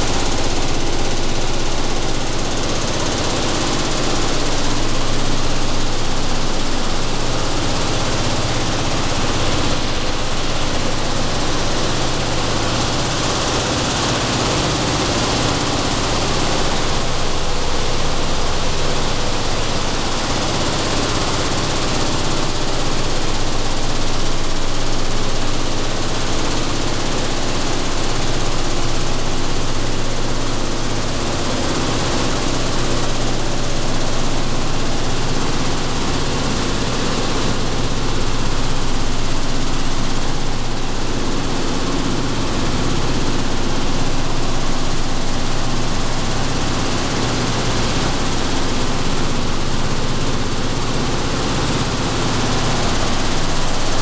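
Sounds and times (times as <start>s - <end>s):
low mechanical hum: 32.2s - 54.0s.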